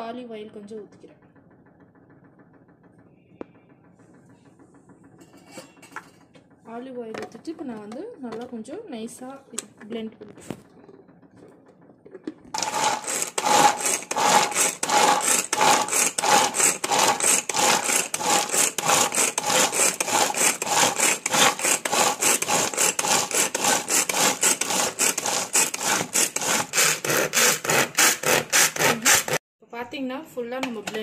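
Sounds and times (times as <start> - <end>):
food chopper whirring: 10.5 - 29.4.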